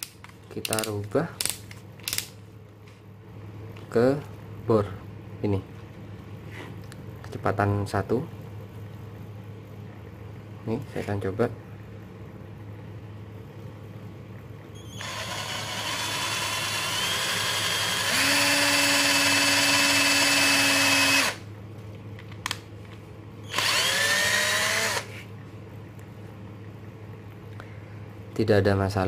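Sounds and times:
drill click: 14.9 - 21.4, 23.5 - 25.1
cordless drill drilling into wood: 15.0 - 21.4, 23.5 - 25.1.

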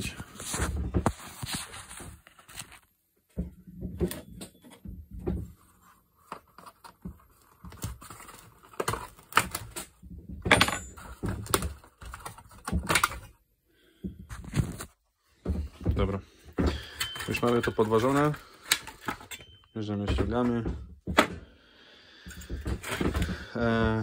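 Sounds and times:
plastic cover clicking and clattering: 6.2 - 13.4, 16.6 - 21.4, 22.3 - 24.0.

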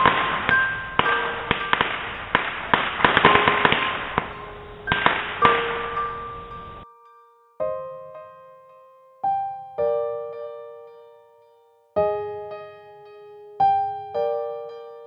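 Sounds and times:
crackling hiss: 0.0 - 6.8
firecrackers banging: 0.0 - 6.8
held music notes: 0.0 - 15.0.

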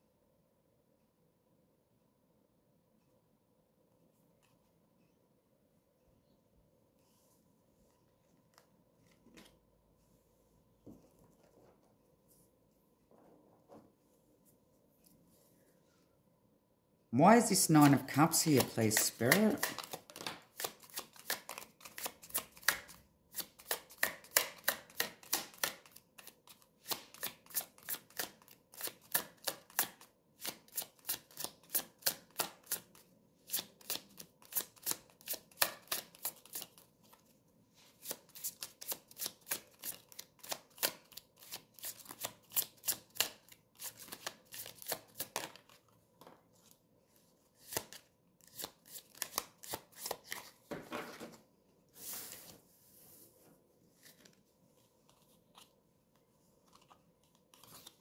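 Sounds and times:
cards being shuffled: 8.4 - 9.6, 17.3 - 37.3, 37.9 - 45.9, 47.6 - 51.4, 56.6 - 58.0.

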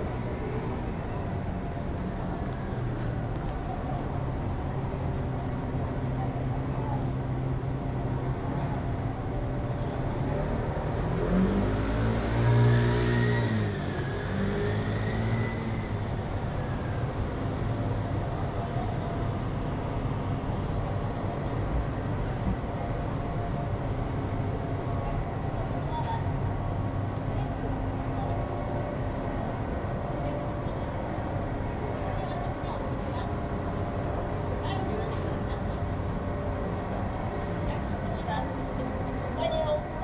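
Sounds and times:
street traffic hum: 0.0 - 40.0
vehicle accelerating past: 10.2 - 16.2.

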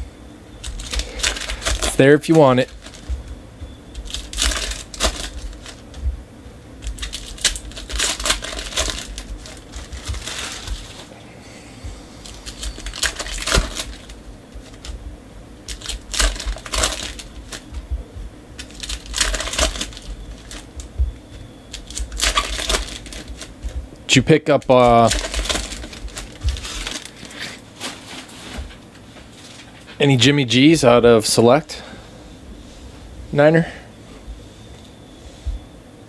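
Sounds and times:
wrappers crinkling and tearing: 0.6 - 6.0, 6.8 - 11.1, 12.1 - 15.0, 15.6 - 17.8, 18.5 - 29.8
cards being handled: 0.6 - 6.1, 6.8 - 11.1, 12.2 - 15.0, 15.7 - 17.9, 18.6 - 23.8, 24.7 - 29.9.

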